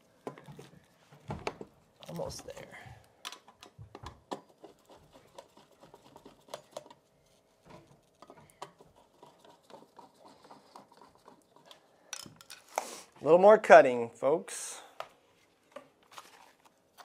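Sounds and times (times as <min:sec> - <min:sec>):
small clicks and scratches on metal: 0:03.4 - 0:11.8.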